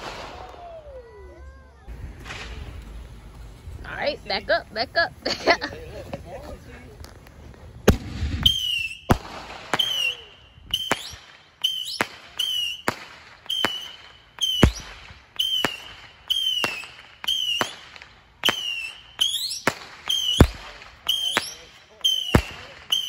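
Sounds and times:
fireworks bangs with whistles: 0:00.0 - 0:01.2, 0:02.0 - 0:03.0, 0:07.8 - 0:23.0.

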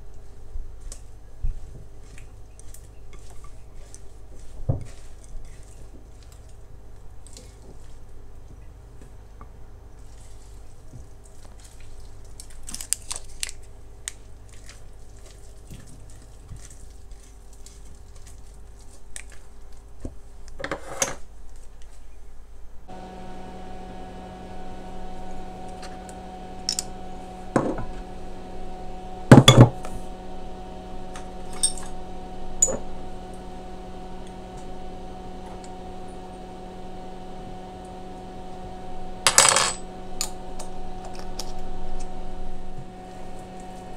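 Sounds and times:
steady low hum: 0:22.8 - 0:43.9.

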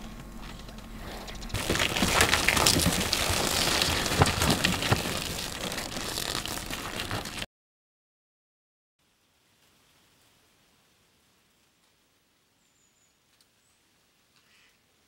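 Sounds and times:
hooves trampling frozen ground: 0:00.0 - 0:07.5.

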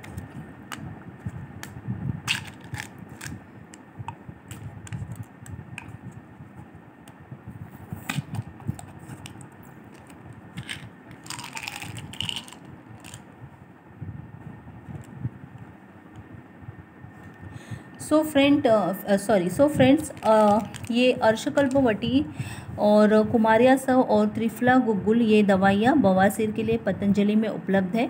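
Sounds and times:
foil seal crinkling: 0:02.3 - 0:03.4, 0:10.0 - 0:13.2, 0:20.0 - 0:21.0.

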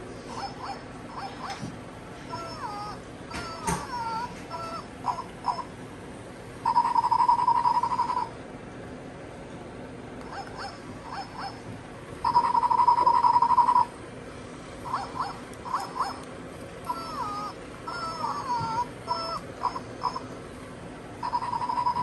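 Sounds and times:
toy dog yipping: 0:00.3 - 0:01.7, 0:02.3 - 0:05.7, 0:10.2 - 0:13.9, 0:14.8 - 0:20.3, 0:21.2 - 0:22.0
toy dog whining: 0:00.3 - 0:05.7, 0:06.6 - 0:08.3, 0:10.2 - 0:11.6, 0:12.2 - 0:13.9, 0:14.8 - 0:20.4, 0:21.2 - 0:22.0.

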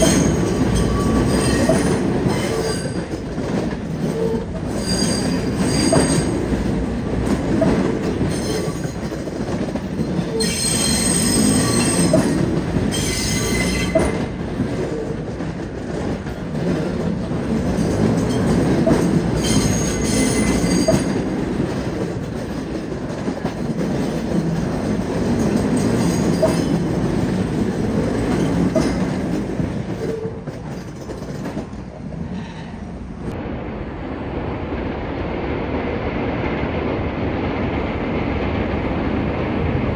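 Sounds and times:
train wheels rumbling on rails: 0:00.0 - 0:39.9
high-pitched wheel squeal: 0:04.1 - 0:06.3, 0:10.3 - 0:14.1, 0:19.4 - 0:21.1.

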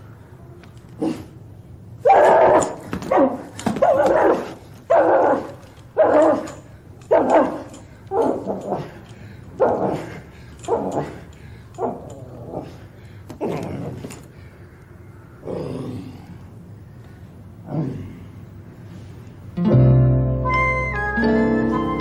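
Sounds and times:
dog yelping and barking: 0:02.0 - 0:12.8.

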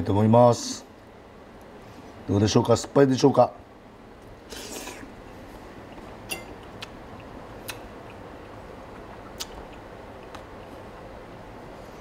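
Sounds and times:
faint chewing clicks: 0:05.2 - 0:11.1.

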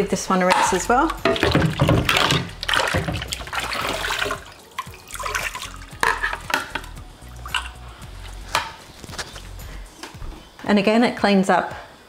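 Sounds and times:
tap water running over plastic: 0:01.1 - 0:07.8
plastic part knocking and clattering: 0:01.2 - 0:03.3.

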